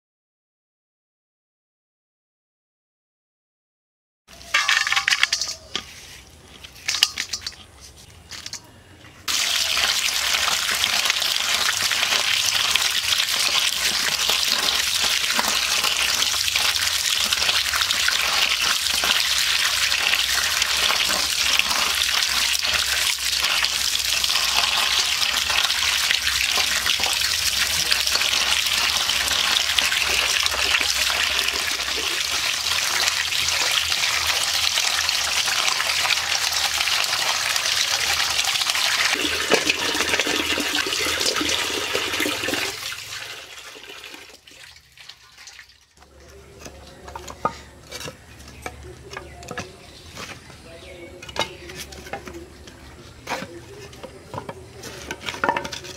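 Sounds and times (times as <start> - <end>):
hand washing fish: 9.3 - 46.0
water running into colander: 9.3 - 46.0.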